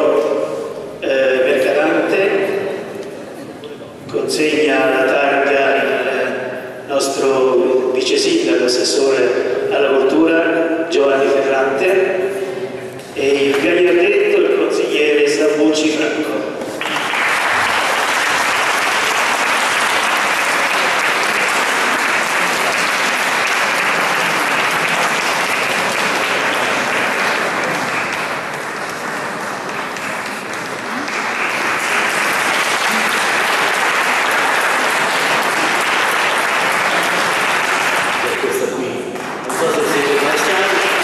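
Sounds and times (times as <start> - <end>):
audience applauding: 16.7 - 41.0.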